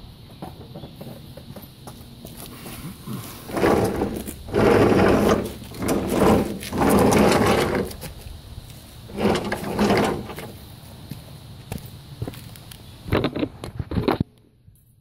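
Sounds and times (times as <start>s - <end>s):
metal deck scraping on asphalt: 0.2s - 2.0s, 3.1s - 10.7s.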